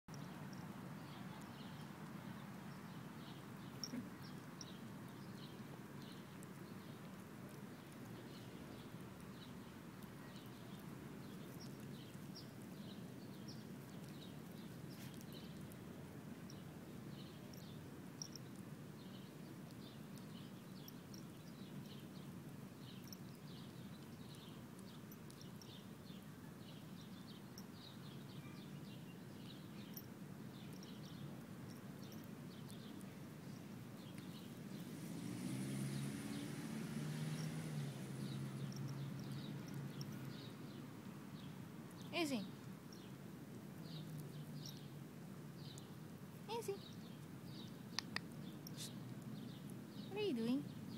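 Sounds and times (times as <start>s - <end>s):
small birds chirping: 0.1s - 50.9s
puppy chewing: 5.5s - 18.7s, 41.8s - 45.0s.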